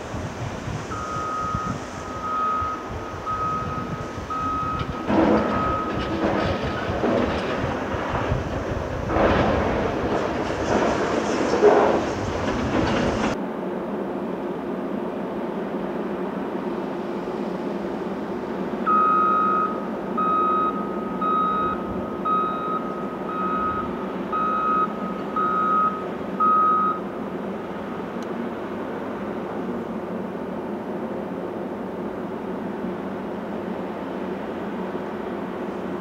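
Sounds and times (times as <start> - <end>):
wheel loader engine running: 0.1 - 13.4, 15.3 - 36.0
reverse alarm beeping: 0.9 - 6.1, 18.8 - 27.1
rock scraping in excavator bucket: 9.0 - 13.4.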